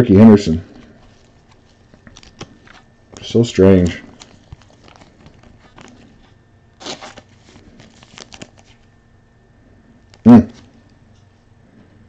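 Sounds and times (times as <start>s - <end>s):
packaging crinkling and rustling: 0.8s - 9.0s.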